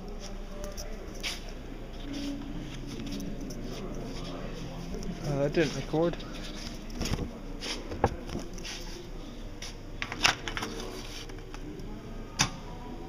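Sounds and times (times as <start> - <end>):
paper card rustling and scraping: 2.0 - 9.0, 10.0 - 11.4.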